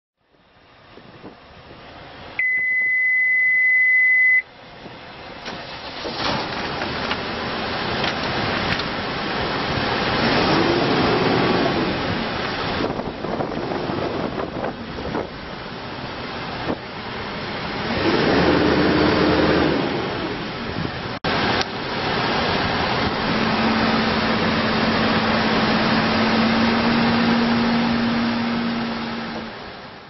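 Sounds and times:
warning buzzer beep: 2.4s - 4.4s
diesel engine cranking and running: 4.5s - 30.0s.

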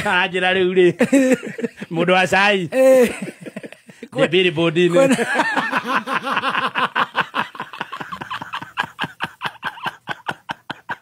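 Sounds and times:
man laughing hard: 0.9s - 1.9s, 2.7s - 4.2s, 4.9s - 11.0s.

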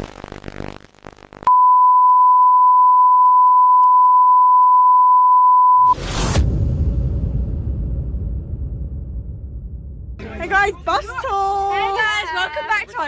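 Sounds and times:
electronic sine-wave beep: 1.4s - 6.0s
rush of noise with low rumble: 6.0s - 11.0s.

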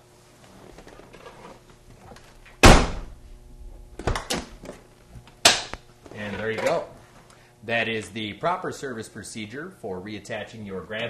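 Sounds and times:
sharp knock: 2.6s - 3.1s.

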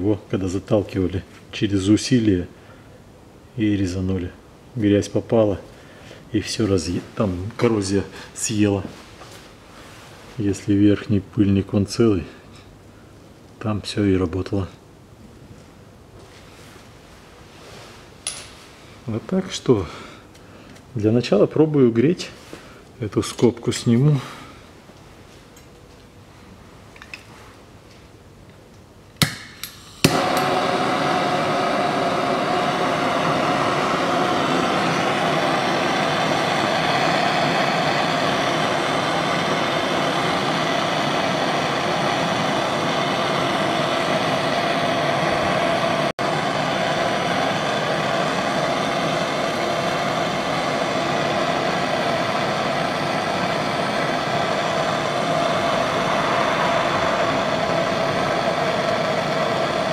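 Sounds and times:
gas torch igniter clicks: 29.2s - 34.2s
gas torch hissing: 29.2s - 59.9s.

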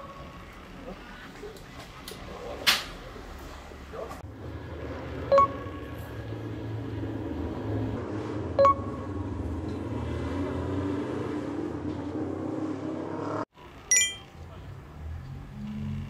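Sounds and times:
short bell-like chimes: 13.9s - 14.3s.

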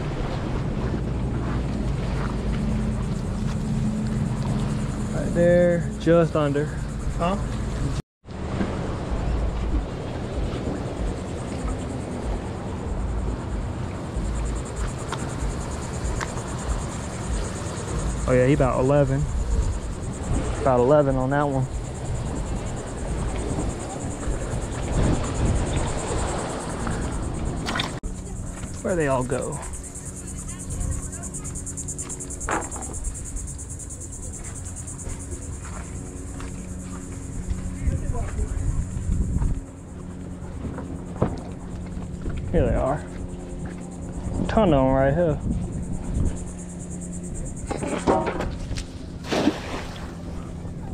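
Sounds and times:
low rumble: 0.0s - 47.9s
wind gusting on microphone: 0.0s - 50.9s
insects trilling: 1.8s - 8.0s, 9.0s - 50.9s
rapid high-pitched pulsing: 10.8s - 41.2s, 42.6s - 47.8s.

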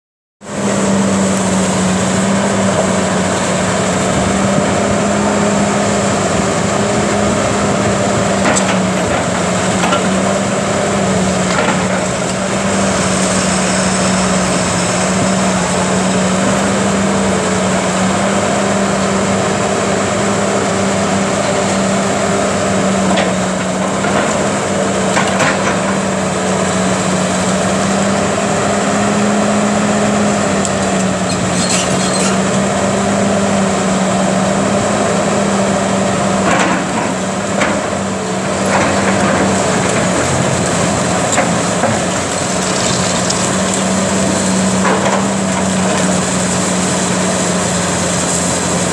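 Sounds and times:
excavator diesel engine running: 0.4s - 48.9s
debris crunching and splintering: 38.7s - 48.9s.

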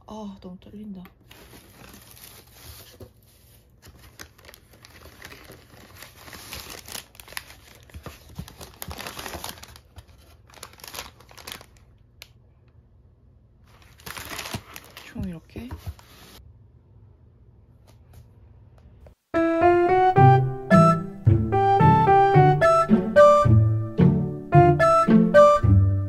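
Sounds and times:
packing paper rustling: 1.2s - 12.0s, 13.6s - 16.4s.

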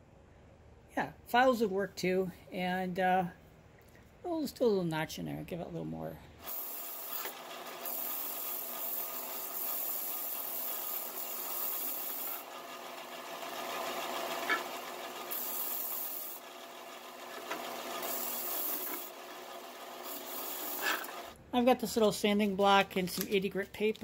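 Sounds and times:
sander motor hum: 6.5s - 21.4s
wood grinding on sanding disc: 6.5s - 21.4s.

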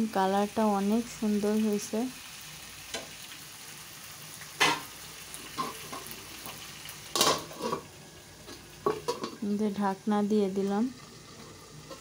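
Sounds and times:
curry sizzling in a pan: 0.0s - 12.0s.

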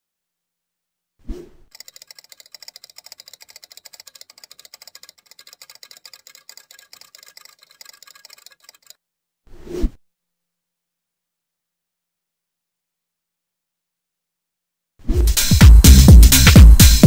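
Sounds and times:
rapid digital ticking: 1.7s - 8.9s.

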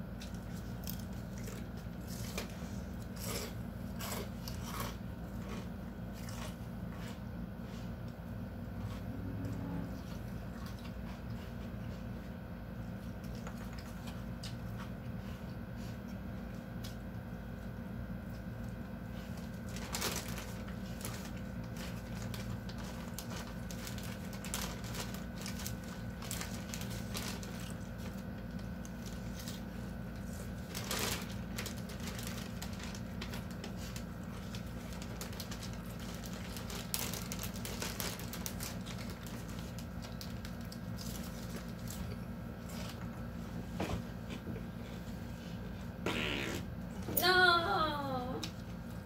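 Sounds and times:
crunchy chewing of salad: 0.0s - 46.0s
steady low hum: 0.0s - 49.0s
plastic bag crinkling: 19.4s - 43.2s.

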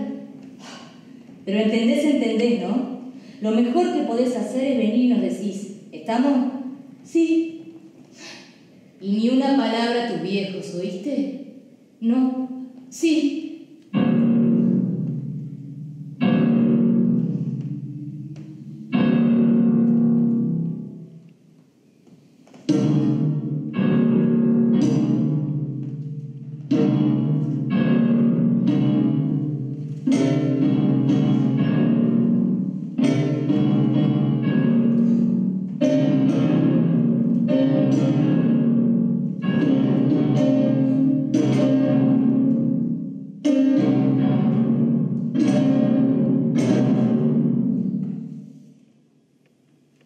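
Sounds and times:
loud piano chords: 13.4s - 21.2s, 22.7s - 48.6s.

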